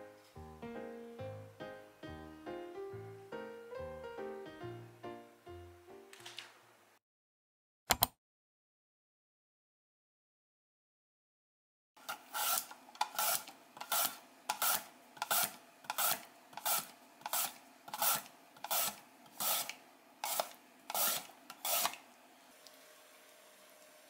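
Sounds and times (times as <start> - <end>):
mandoline slicer rasping: 12.0 - 22.1.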